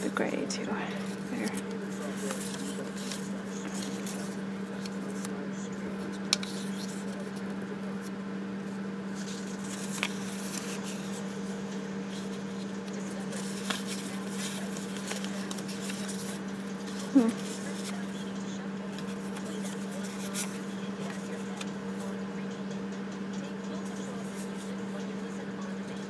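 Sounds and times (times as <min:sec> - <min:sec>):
steady low hum: 0:00.0 - 0:26.0
paper rustling and sliding: 0:01.0 - 0:05.3, 0:09.2 - 0:11.5, 0:12.1 - 0:18.2, 0:18.9 - 0:21.7.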